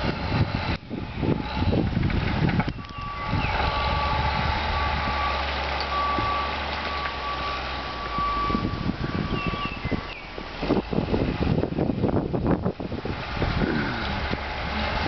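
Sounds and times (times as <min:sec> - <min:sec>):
low engine rumble: 0:00.0 - 0:15.0
vehicle back-up alarm beeping: 0:02.6 - 0:11.0.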